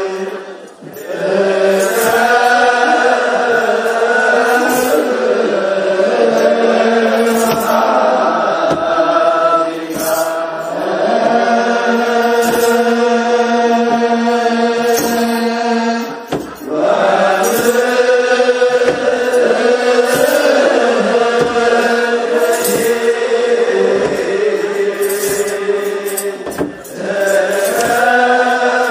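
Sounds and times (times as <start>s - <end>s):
group chanting in long notes: 0.0s - 28.9s
drum beats: 16.3s - 16.7s, 18.8s - 23.1s, 23.9s - 24.5s.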